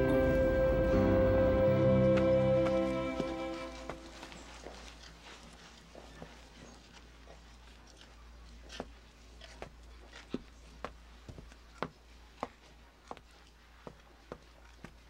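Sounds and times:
sharp footsteps: 0.0 - 6.7.

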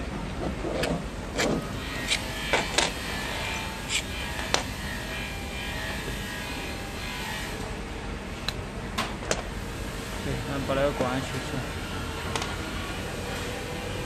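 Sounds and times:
steady mechanical hum: 0.0 - 14.0.

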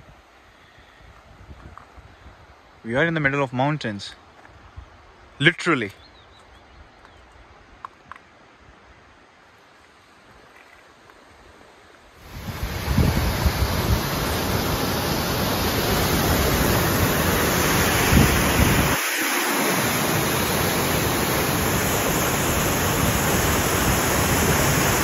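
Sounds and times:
mountain stream rushing: 7.6 - 25.0
wind buffeting microphone: 12.2 - 19.0.

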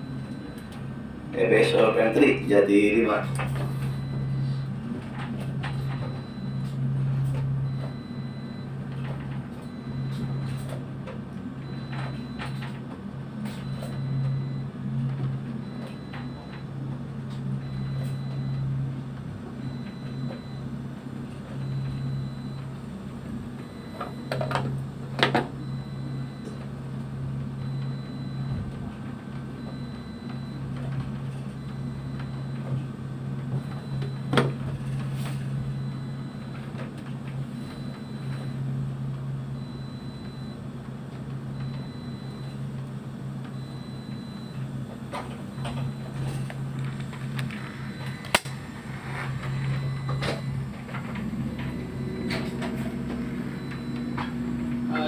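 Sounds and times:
boat engine droning: 0.0 - 26.3, 41.6 - 55.0.

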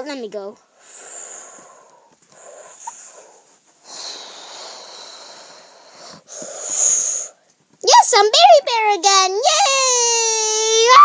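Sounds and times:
person breathing out heavily: 0.8 - 7.4.

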